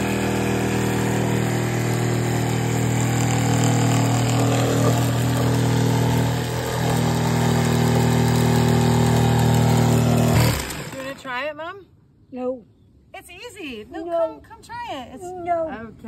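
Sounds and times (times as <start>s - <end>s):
jigsaw cutting board: 0.0s - 11.3s.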